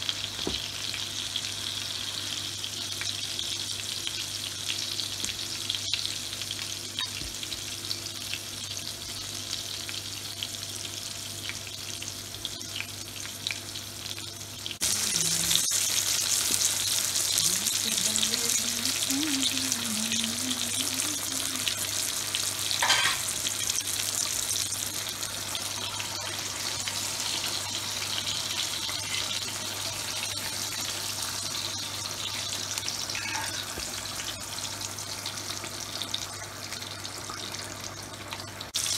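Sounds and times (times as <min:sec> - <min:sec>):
meat sizzling on a griddle: 0:00.0 - 0:38.9.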